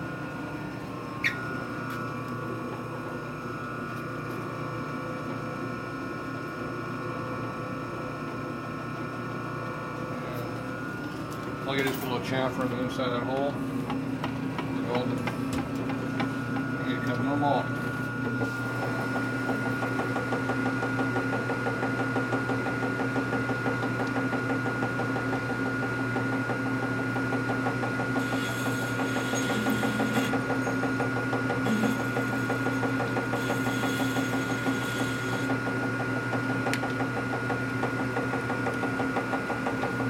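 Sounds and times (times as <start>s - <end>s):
machine tool motor hum and whine: 0.0s - 40.0s
cutter working metal: 28.2s - 35.5s.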